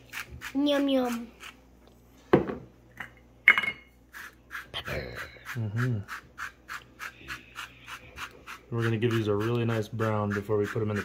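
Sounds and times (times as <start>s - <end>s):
pepper mill grinding: 0.0s - 1.6s, 4.1s - 11.0s.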